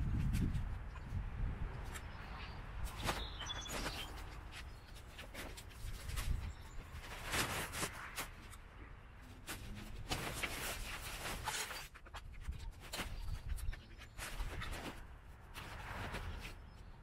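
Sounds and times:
nylon tent fly rustling: 0:02.8 - 0:08.7, 0:09.3 - 0:16.8.

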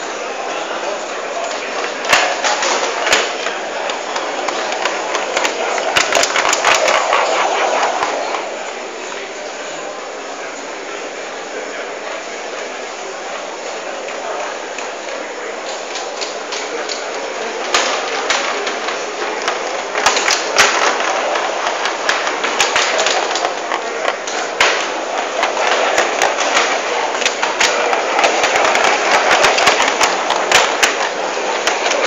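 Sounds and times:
hall background noise: 0:00.0 - 0:32.0
model tram wheels clicking on rails: 0:01.4 - 0:07.2, 0:14.0 - 0:32.0.

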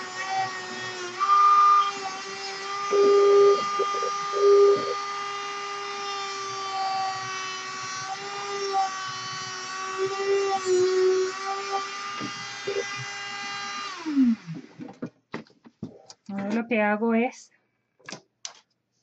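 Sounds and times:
rotary tool cutting wood: 0:00.0 - 0:14.9.

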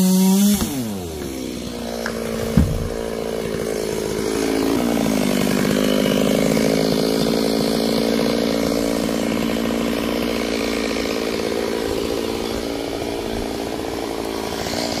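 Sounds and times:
chainsaw cutting log: 0:00.0 - 0:15.0.

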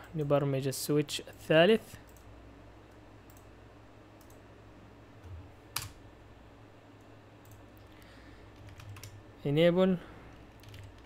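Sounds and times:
steady low hum: 0:00.0 - 0:11.0
computer mouse click: 0:02.9 - 0:03.5, 0:04.2 - 0:04.4.

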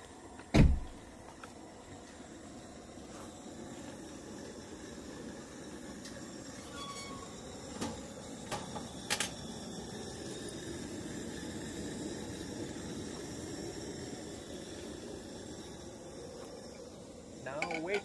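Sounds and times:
gas stove burner hissing: 0:00.0 - 0:18.0.

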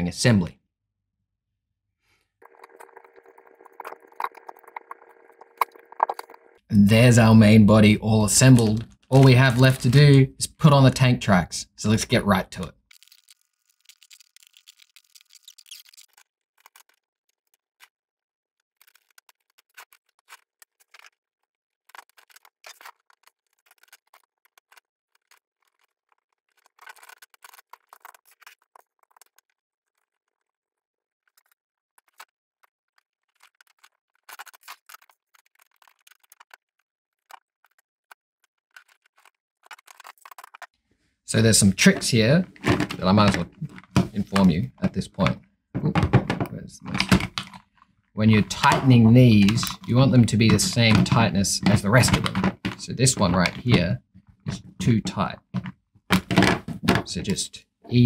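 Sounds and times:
plastic bags crinkling: 0:12.9 - 0:17.0, 0:41.8 - 0:57.1.

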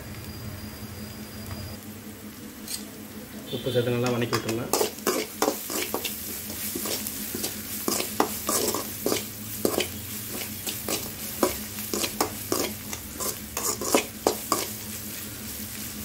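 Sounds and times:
oil sizzling: 0:00.0 - 0:16.0
metal spoon scraping a pan: 0:04.0 - 0:15.3.

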